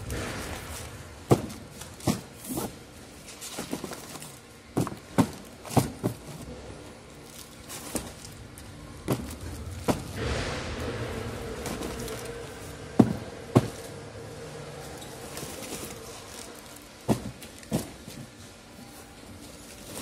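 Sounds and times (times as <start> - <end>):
bottle packs knocking on pallet: 0.1 - 2.8, 3.5 - 6.4, 9.0 - 10.2, 11.6 - 13.9, 17.0 - 18.3
plastic crinkle: 14.9 - 20.0.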